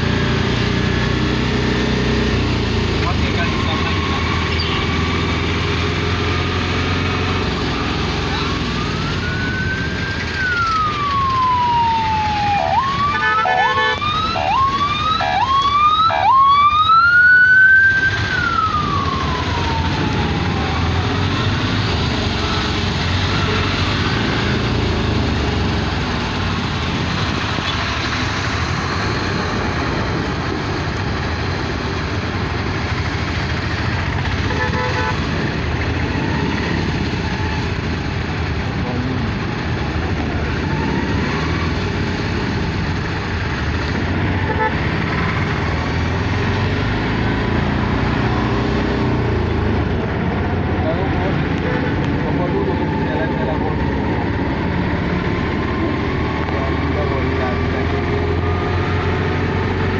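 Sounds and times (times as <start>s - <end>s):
traffic noise: 0.0s - 59.9s
siren wailing and yelping: 7.4s - 21.5s, 51.6s - 54.8s
vehicle horn: 13.2s - 14.0s, 34.4s - 35.3s, 44.4s - 44.8s.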